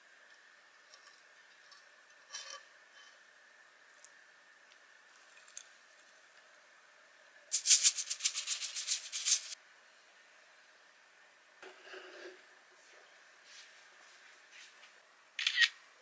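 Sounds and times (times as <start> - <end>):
quick dry rattle: 7.5 - 9.6.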